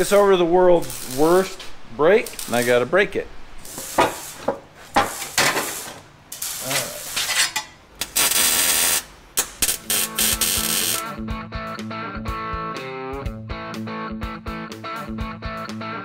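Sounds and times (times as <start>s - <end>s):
sheet steel clattering and scraping: 3.8s - 6.0s
hiss: 5.1s - 7.2s
background music: 9.7s - 16.0s.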